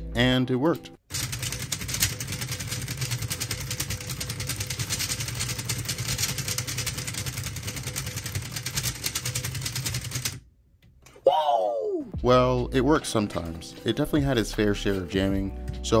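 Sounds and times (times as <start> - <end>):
fast clatter of clicks: 1.1 - 10.4.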